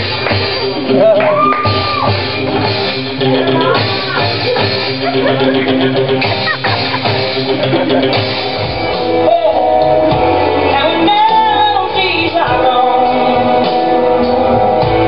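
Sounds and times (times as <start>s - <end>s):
person singing over instrumental backing: 9.1s - 15.0s.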